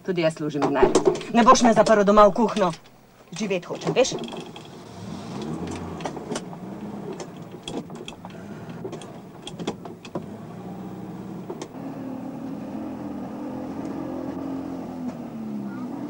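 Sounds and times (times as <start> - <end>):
sharp clicks and knocks: 0.6 - 10.3
car engine revving through gears: 4.2 - 16.0.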